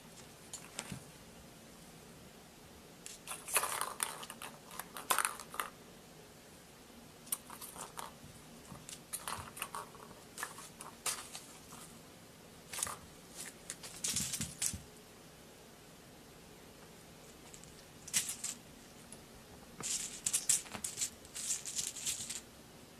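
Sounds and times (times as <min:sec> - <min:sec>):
kitten batting at toys: 0:03.1 - 0:05.8, 0:07.3 - 0:11.8, 0:12.7 - 0:14.9, 0:17.4 - 0:18.7, 0:19.8 - 0:22.4.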